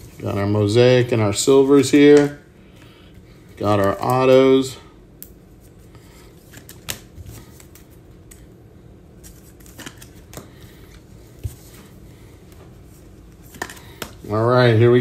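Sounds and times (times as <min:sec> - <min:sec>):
cards rustling: 0:01.7 - 0:04.8, 0:05.5 - 0:08.5, 0:09.2 - 0:14.8.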